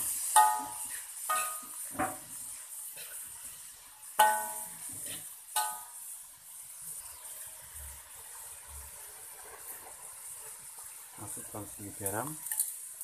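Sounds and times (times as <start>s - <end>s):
faint frying sizzle: 0.0s - 13.0s
metal spatula clanging on wok: 0.4s - 1.7s, 4.2s - 4.8s, 5.6s - 6.0s.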